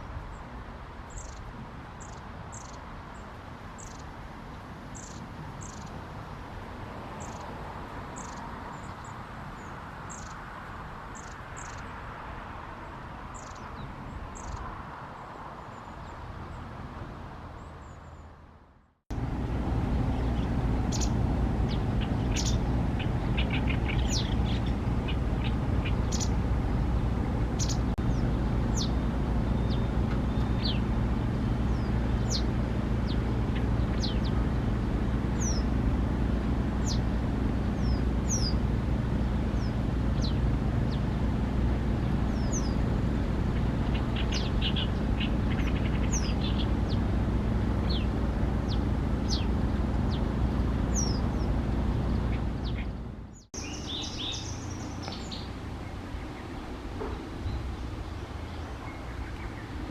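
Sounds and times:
steady low rumble: 0:19.1 - 0:59.9
wagtail sharp calls: 0:20.1 - 0:26.4, 0:27.0 - 0:31.0, 0:35.3 - 0:35.8, 0:37.8 - 0:41.2, 0:42.2 - 0:47.1, 0:50.9 - 0:56.5.

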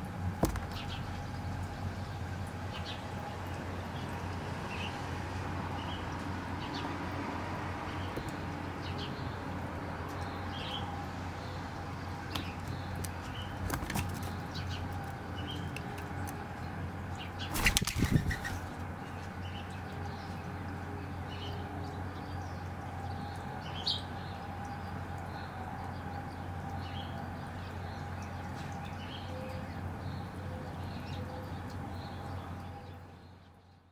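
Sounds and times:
dove wings flapping: 0:17.5 - 0:18.8.

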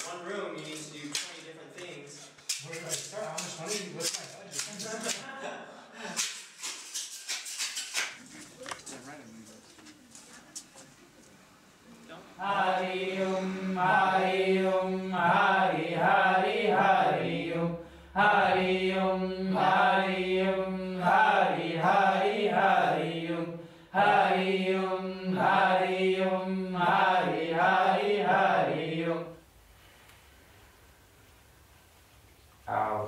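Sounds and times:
person chanting on one pitch: 0:12.4 - 0:22.6.

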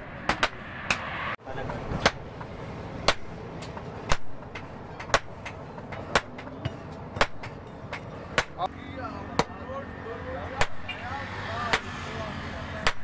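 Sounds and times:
hammer striking hot steel on anvil: 0:00.2 - 0:01.2, 0:01.9 - 0:08.7, 0:10.6 - 0:10.9, 0:11.7 - 0:12.1.

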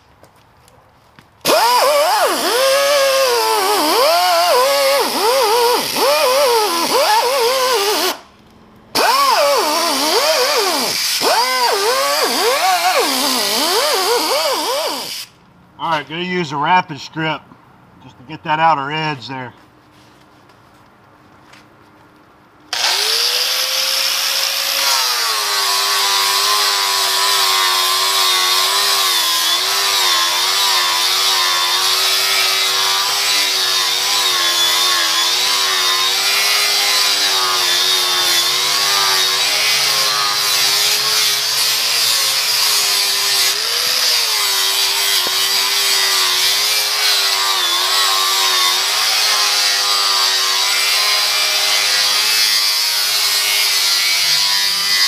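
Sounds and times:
angle grinder stripping rust from metal: 0:01.4 - 0:08.2, 0:09.0 - 0:15.3, 0:22.7 - 0:55.0
grinder motor whine: 0:01.5 - 0:08.2, 0:09.0 - 0:15.1, 0:22.7 - 0:52.6.

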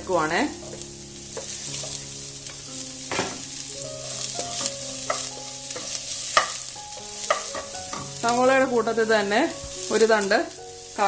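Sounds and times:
onion sizzling in oil: 0:00.0 - 0:11.0
wooden spatula scraping and tapping pan: 0:00.6 - 0:08.4.

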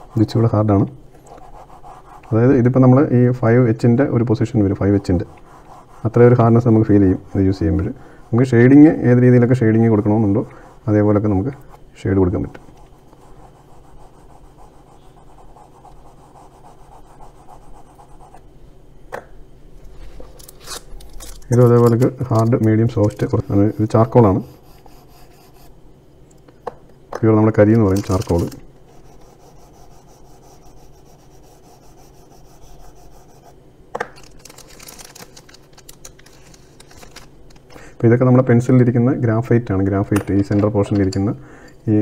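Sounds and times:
charcoal scratching on paper: 0:01.2 - 0:02.6, 0:04.6 - 0:08.8, 0:12.4 - 0:18.4, 0:23.2 - 0:25.7, 0:28.1 - 0:33.6
graphite stick scrubbing on paper: 0:01.3 - 0:02.5, 0:04.6 - 0:07.7.

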